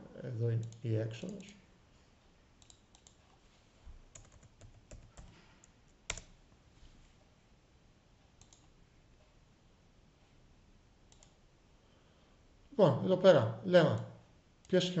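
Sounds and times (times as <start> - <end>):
computer keyboard typing: 2.6 - 3.2, 4.1 - 6.4, 8.4 - 8.7.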